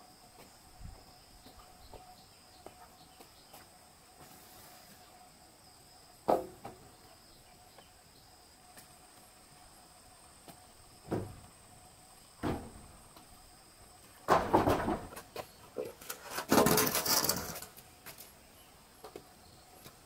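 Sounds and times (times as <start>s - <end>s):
faint insect drone: 0.0s - 20.0s
wooden rafter knocking on timber: 6.3s - 6.8s, 11.0s - 11.4s, 12.4s - 12.9s, 14.3s - 15.2s.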